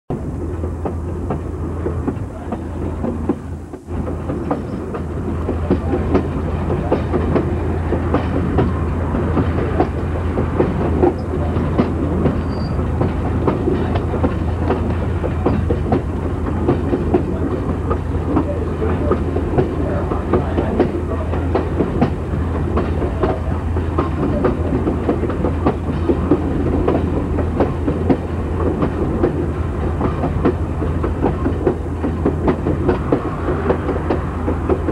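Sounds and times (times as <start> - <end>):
train car rumble: 0.1 - 34.9
wheels clickety-clack over rail joints: 0.1 - 34.9.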